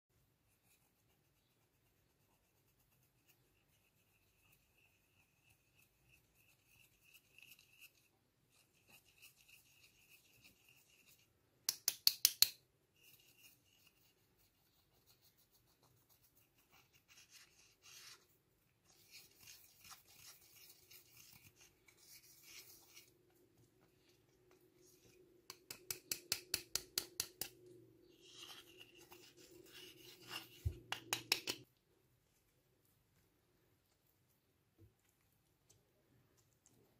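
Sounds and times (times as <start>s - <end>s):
plastic stick scraping powder: 13.0s - 23.2s, 24.1s - 31.6s.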